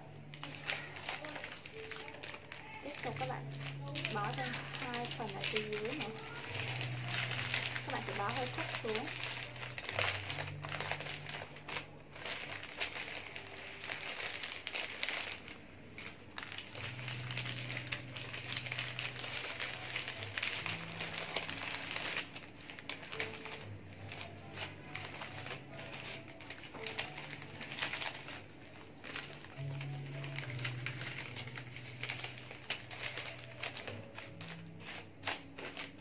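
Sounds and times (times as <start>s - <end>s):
wrapping paper crinkling: 0.0s - 36.0s.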